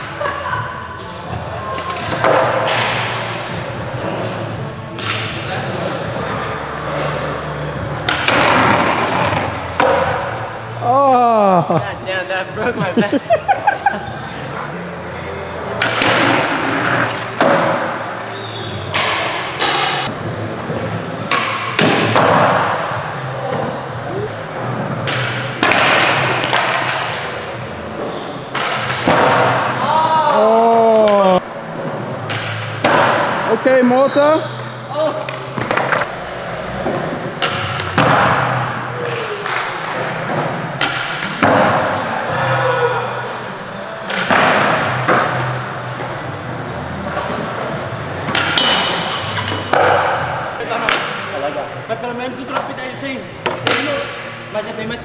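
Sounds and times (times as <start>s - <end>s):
skateboard scraping: 5.7s - 10.2s, 16.0s - 20.1s.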